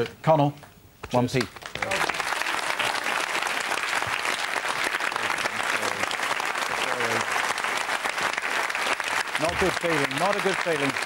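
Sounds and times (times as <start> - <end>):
audience applauding: 1.6 - 11.0.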